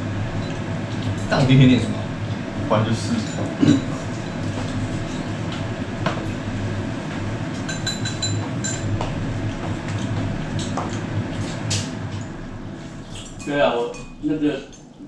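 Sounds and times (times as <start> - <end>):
low machine hum: 0.0 - 15.0
chopsticks and bowls clinking: 3.1 - 5.3, 7.6 - 9.0.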